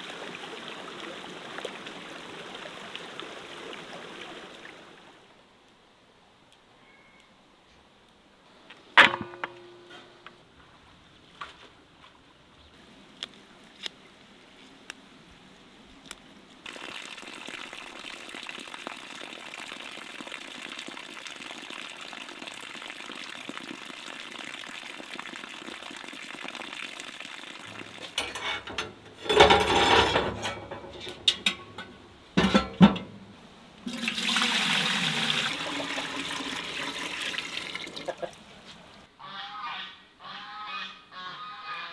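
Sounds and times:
water splashes and knocks: 0:27.6 - 0:38.9
water poured into steel bowl: 0:33.8 - 0:38.2
water running from tap: 0:33.9 - 0:38.1.

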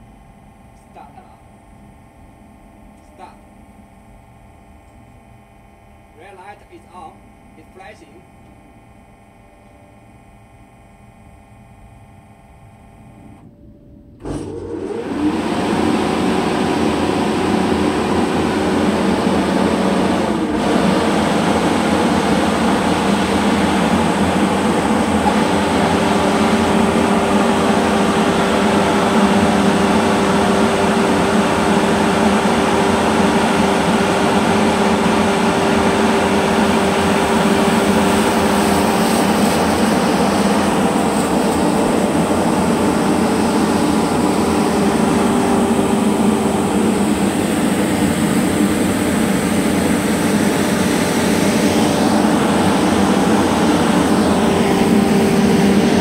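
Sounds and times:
steady hum: 0:00.0 - 0:56.0
large fan airy rush: 0:14.2 - 0:56.0.

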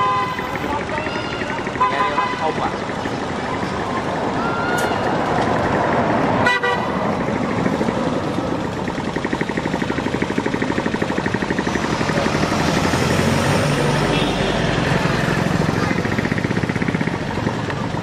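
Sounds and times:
vehicle horn toot: 0:00.0 - 0:02.6, 0:06.4 - 0:07.0, 0:14.1 - 0:14.8
engine puttering: 0:00.0 - 0:18.0.

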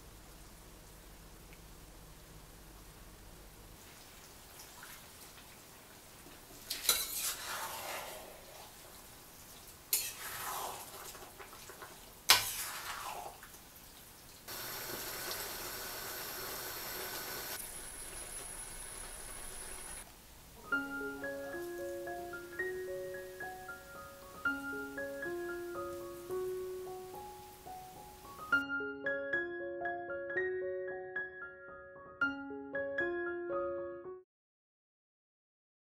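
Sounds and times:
sauce sizzling: 0:06.6 - 0:13.4, 0:14.5 - 0:20.1
wet swishing through sauce: 0:06.8 - 0:13.5.

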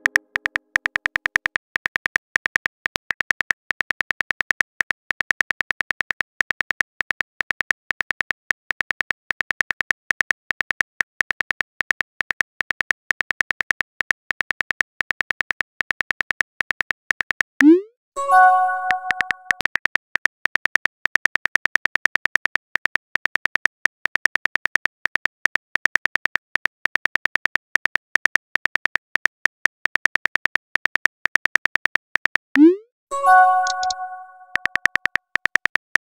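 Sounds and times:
phone keyboard typing clicks: 0:00.0 - 0:02.5, 0:18.4 - 0:19.8, 0:30.2 - 0:36.0.

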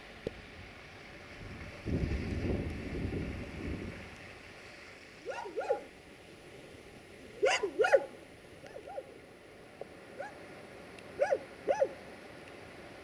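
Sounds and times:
dog barking: 0:05.3 - 0:05.9, 0:07.4 - 0:08.1, 0:10.2 - 0:10.4, 0:11.2 - 0:12.0.

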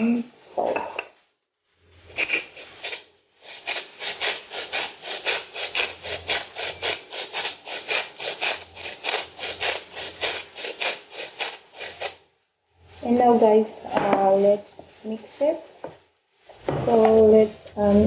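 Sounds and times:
salt grinder grinding: 0:02.1 - 0:12.2.

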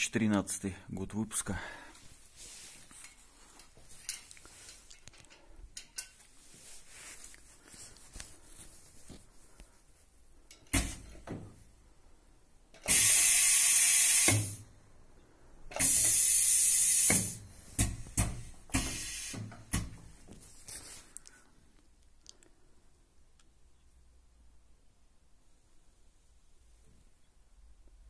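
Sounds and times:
compressed air hissing: 0:12.8 - 0:14.6, 0:15.7 - 0:19.9.

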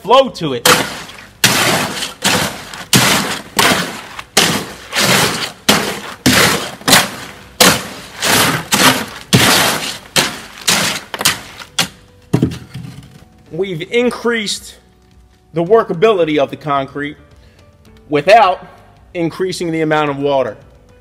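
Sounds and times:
hoe scraping wet concrete: 0:00.6 - 0:12.0.

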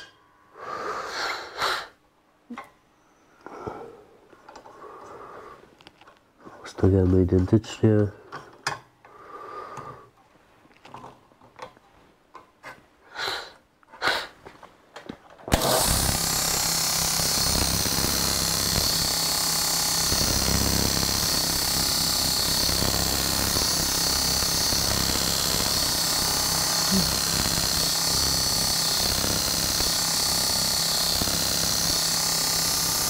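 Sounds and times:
belt grinder grinding metal: 0:15.5 - 0:33.0.

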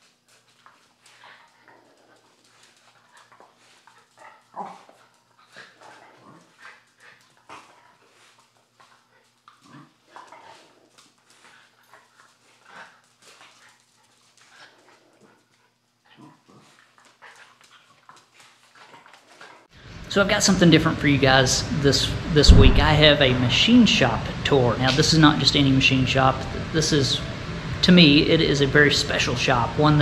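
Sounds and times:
dogs playing: 0:00.0 - 0:19.8.

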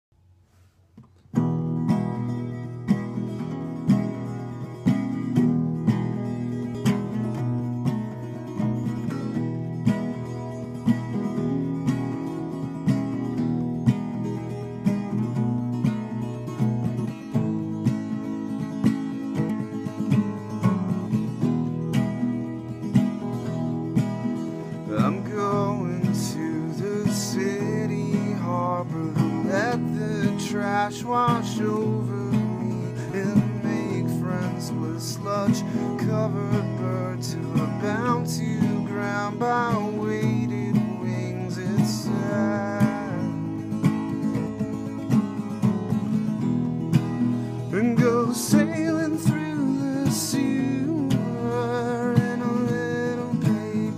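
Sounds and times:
acoustic guitar strumming chords: 0:00.6 - 0:53.9
man singing: 0:24.8 - 0:43.7, 0:47.6 - 0:53.9.

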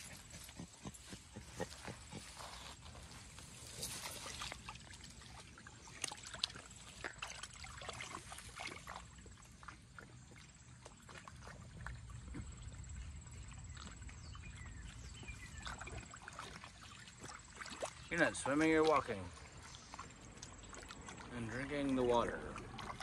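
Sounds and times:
dog splashing through water: 0:00.0 - 0:23.0.

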